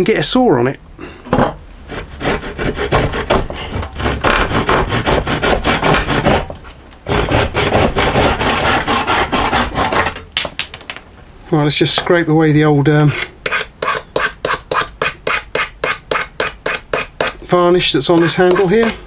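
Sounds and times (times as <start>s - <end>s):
hand saw cutting wood: 1.9s - 10.2s, 13.1s - 17.4s, 18.1s - 19.0s.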